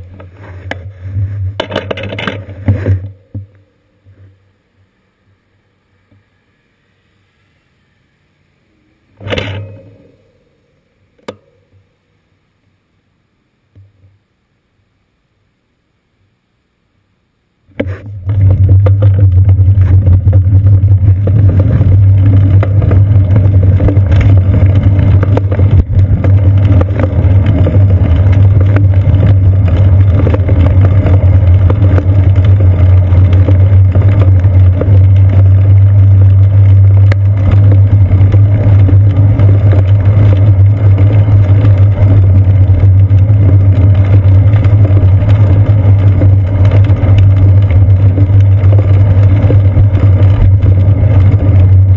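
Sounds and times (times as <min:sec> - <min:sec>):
road vibration and wind rumble: 0:17.8 - 0:51.9.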